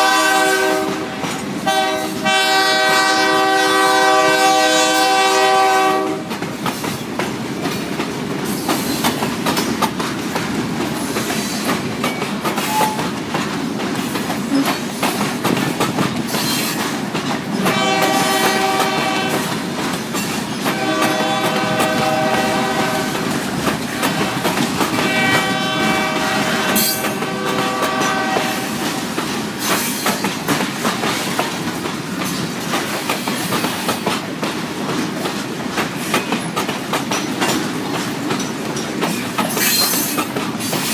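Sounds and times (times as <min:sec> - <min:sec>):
locomotive horn blasts: 0:00.0 - 0:06.4, 0:17.6 - 0:19.6, 0:20.7 - 0:23.4, 0:24.0 - 0:28.8
freight train wheels clattering: 0:00.0 - 0:40.9.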